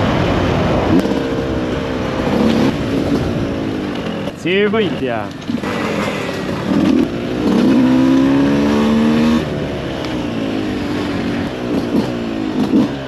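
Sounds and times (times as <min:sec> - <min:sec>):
two-stroke bike engine revving: 0:00.8 - 0:13.0.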